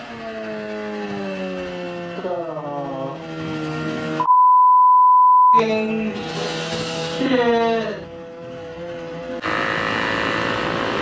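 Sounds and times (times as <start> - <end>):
censor bleep: 4.2 - 5.6.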